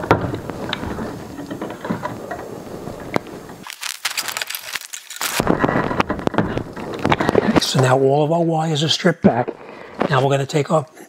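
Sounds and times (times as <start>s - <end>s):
wire strippers stripping insulation: 0.0s - 7.8s
sharp clicks of wires: 3.1s - 7.6s.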